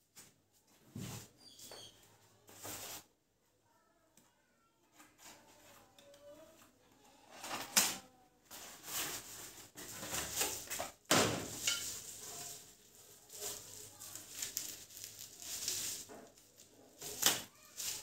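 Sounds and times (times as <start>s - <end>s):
card and plastic wrap rustling: 7.3s - 18.0s.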